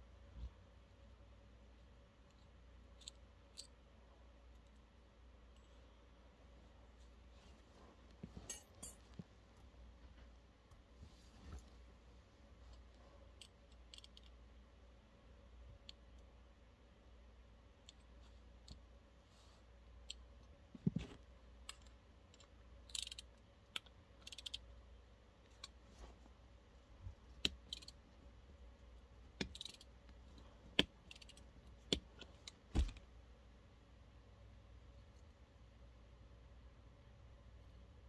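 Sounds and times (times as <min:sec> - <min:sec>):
plastic toy parts clicking: 0:03.0 - 0:03.7, 0:13.4 - 0:14.4, 0:21.6 - 0:24.7, 0:27.3 - 0:28.0, 0:29.3 - 0:30.0, 0:30.7 - 0:32.6.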